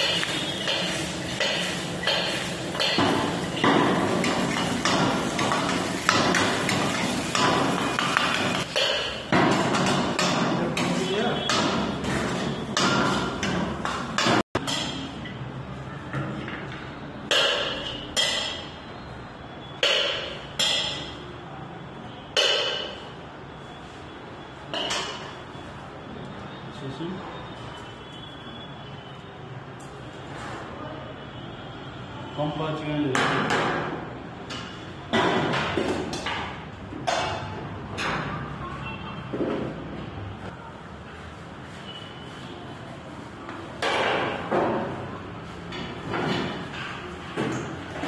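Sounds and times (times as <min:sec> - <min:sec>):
steel ladle clanking against wok: 0:00.0 - 0:13.6, 0:14.2 - 0:15.4.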